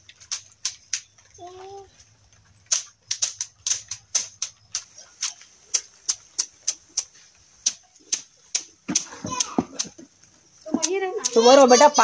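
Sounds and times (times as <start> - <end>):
brooms slapping mud wall: 2.6 - 12.0.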